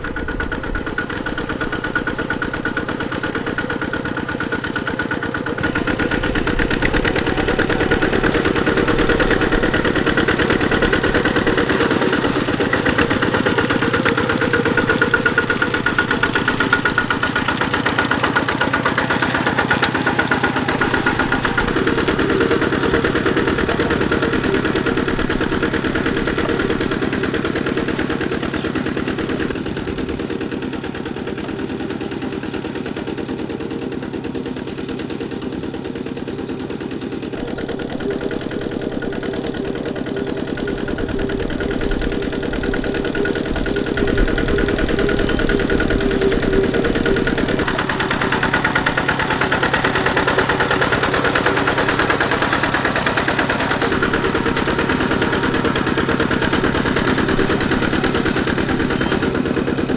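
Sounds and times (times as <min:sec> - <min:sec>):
diesel tractor engine running: 0:00.0 - 0:59.9.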